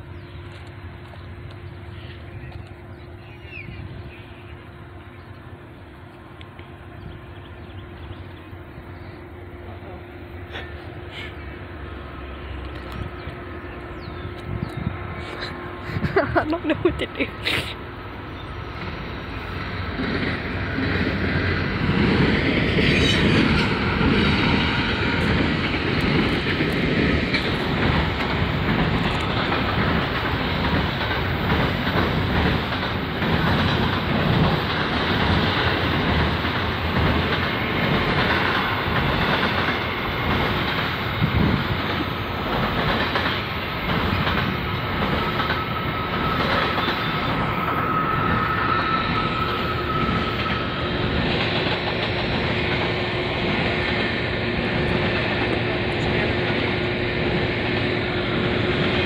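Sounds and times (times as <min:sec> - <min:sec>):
freight train rumbling past: 0:00.0 - 0:59.0
high wheel squeal: 0:45.4 - 0:51.3.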